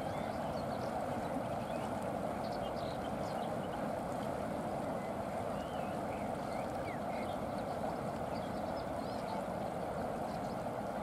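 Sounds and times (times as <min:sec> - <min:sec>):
water rushing through channel: 0:00.0 - 0:11.0.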